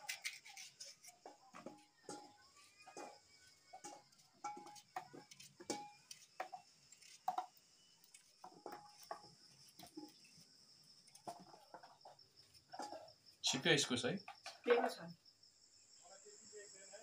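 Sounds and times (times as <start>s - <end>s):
knife cutting squash: 0.0s - 1.2s
insects chirring: 0.0s - 17.0s.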